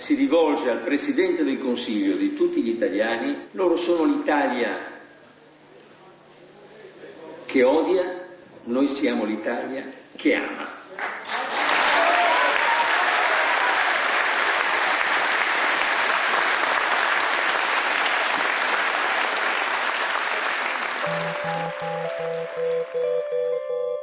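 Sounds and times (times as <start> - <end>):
crowd applauding: 11.0 - 23.6
music: 21.0 - 24.0.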